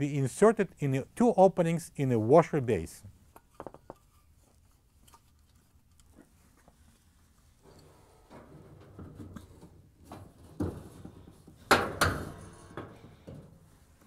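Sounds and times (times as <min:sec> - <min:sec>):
metal clunks: 0:11.6 - 0:13.6.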